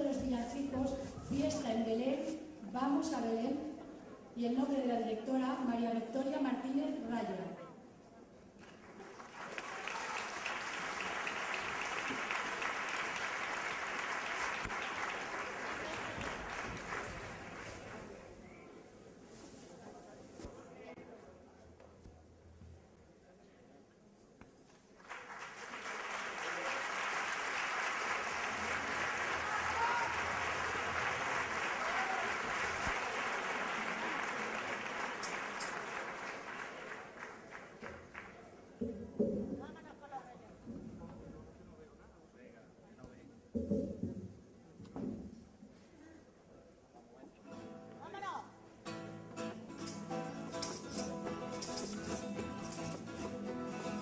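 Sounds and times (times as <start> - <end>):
audience applauding: 8.6 - 18.3, 25.0 - 38.6.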